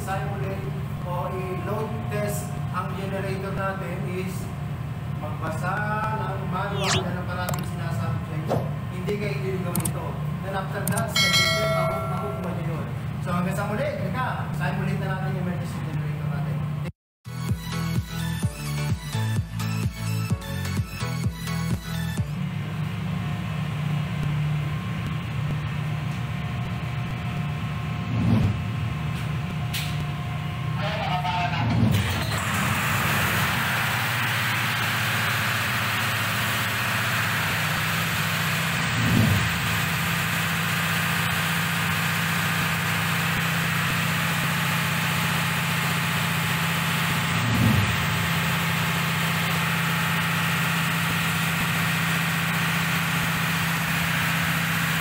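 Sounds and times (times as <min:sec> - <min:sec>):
diesel generator running: 0:00.0 - 0:55.0.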